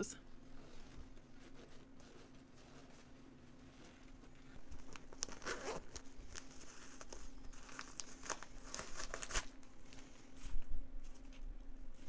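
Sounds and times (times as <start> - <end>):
leather rustling and crinkling: 0.4 - 12.0.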